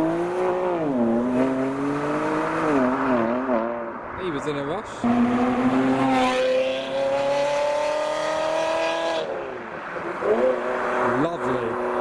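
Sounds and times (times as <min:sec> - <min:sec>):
sports car engine accelerating: 0:00.0 - 0:03.9, 0:05.0 - 0:09.4.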